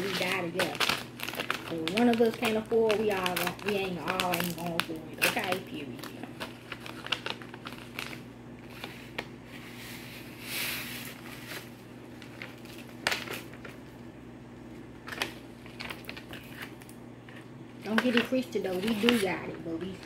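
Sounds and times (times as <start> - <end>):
pouch crinkling: 0.0 - 9.2, 15.0 - 20.0.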